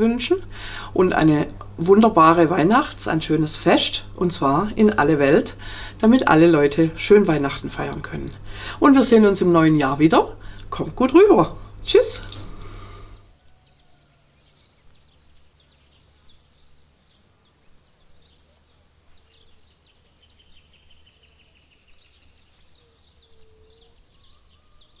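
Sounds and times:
low background hum: 0:00.0 - 0:25.0
faint bird calls: 0:12.2 - 0:25.0
insect trill: 0:12.5 - 0:25.0.

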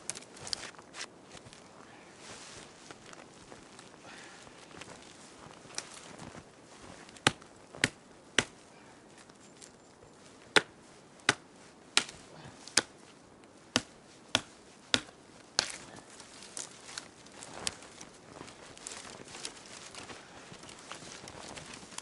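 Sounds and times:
branches rustling: 0:00.0 - 0:22.0
axe chopping branches: 0:07.1 - 0:08.6, 0:10.5 - 0:13.0, 0:13.7 - 0:17.8.

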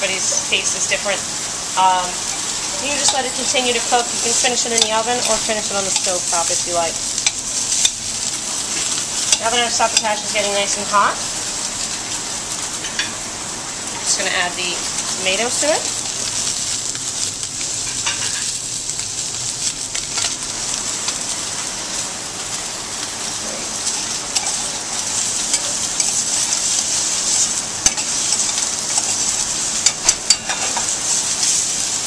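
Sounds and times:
vegetables sizzling in oil: 0:00.0 - 0:32.0
metal spoon scraping a pan: 0:23.8 - 0:26.7, 0:29.8 - 0:30.9.

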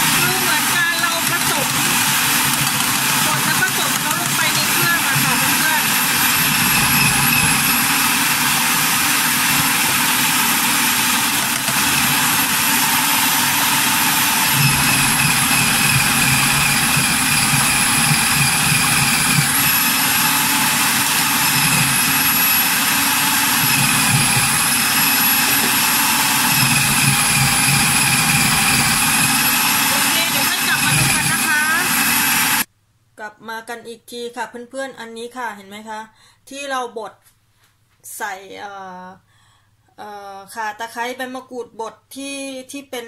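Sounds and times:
food processor motor whining: 0:00.0 - 0:32.7.

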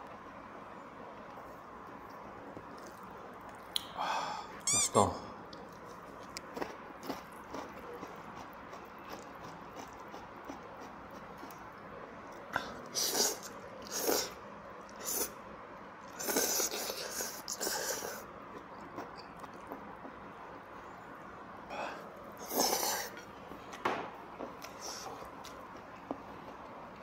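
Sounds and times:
person slurping noodles: 0:12.6 - 0:14.4, 0:16.2 - 0:18.3, 0:22.4 - 0:23.2.

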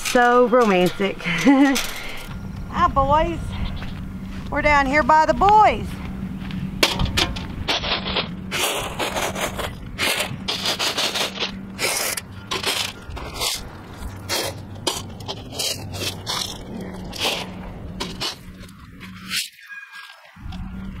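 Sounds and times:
shovel scraping gravel: 0:06.8 - 0:20.3.

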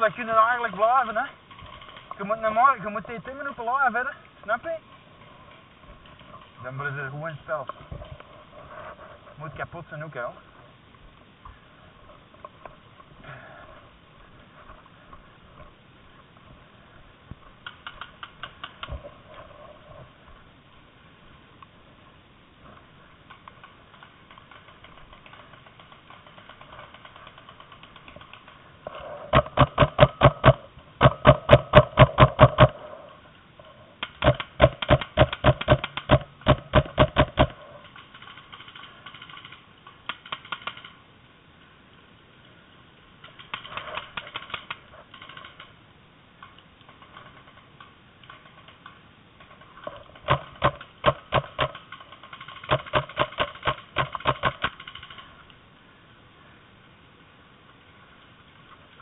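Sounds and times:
paintball markers firing: 0:29.3 - 0:32.8, 0:34.0 - 0:37.6, 0:50.2 - 0:55.1.

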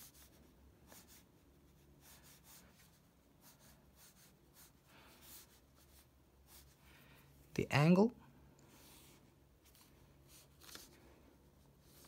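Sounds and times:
pencil scratching on paper: 0:00.0 - 0:06.8.

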